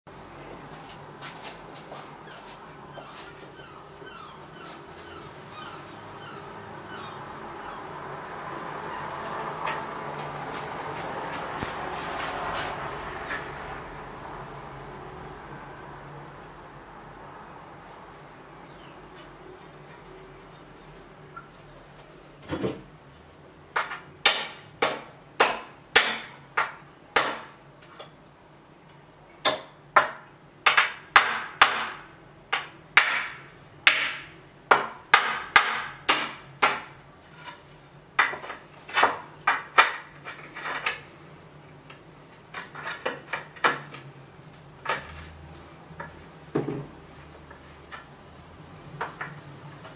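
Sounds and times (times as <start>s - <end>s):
hammer striking nails: 23.8s - 28.0s, 29.4s - 37.0s.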